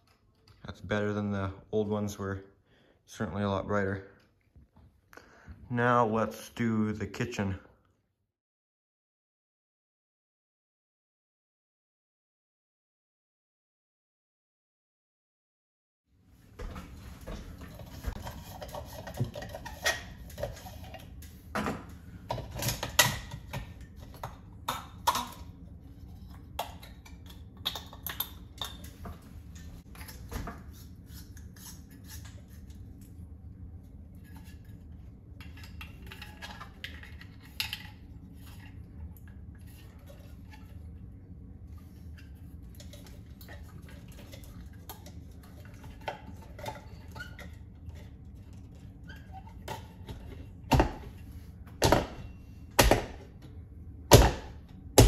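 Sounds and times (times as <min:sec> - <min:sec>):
steady low hum: 0:16.2 - 0:55.0.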